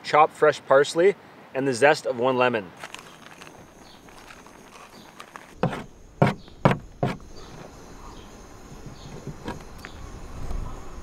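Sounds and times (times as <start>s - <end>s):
low hiss: 0.0s - 11.0s.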